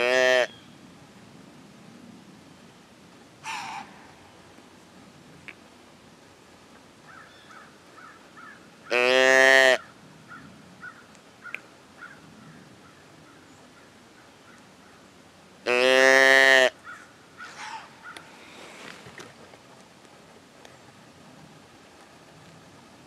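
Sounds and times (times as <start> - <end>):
deer call bleat: 0.0 - 0.5, 3.4 - 4.0, 8.9 - 9.9, 15.6 - 16.8
light rustling: 17.6 - 22.9.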